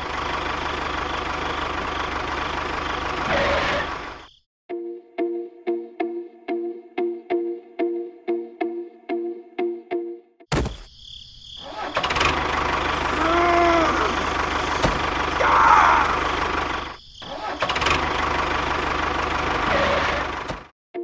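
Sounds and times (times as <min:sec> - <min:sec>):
tractor engine running: 0:00.0 - 0:04.3, 0:11.8 - 0:20.7.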